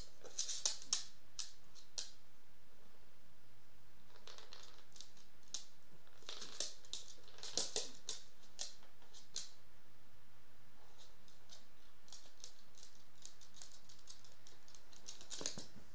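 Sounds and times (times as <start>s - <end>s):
low steady hum: 0.0s - 15.9s
dog claws clicking on hardwood: 0.2s - 2.2s, 4.2s - 9.6s, 11.0s - 15.8s.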